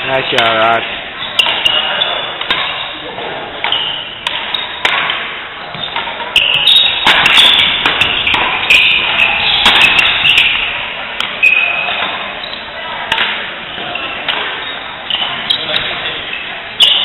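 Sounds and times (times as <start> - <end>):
shoes squeaking on court: 0.4 - 3.0, 3.6 - 5.0, 5.6 - 17.0
rackets smacking shuttlecock: 1.3 - 2.9, 3.6 - 12.3, 13.1 - 16.2.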